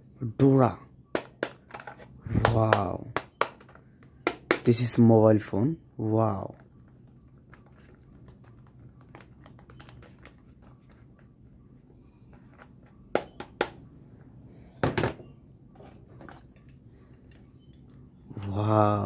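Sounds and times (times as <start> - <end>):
low steady hum: 0.0 - 19.0
plastic toy knock: 1.1 - 4.7, 13.1 - 13.8
sharp plastic taps: 1.1 - 4.7.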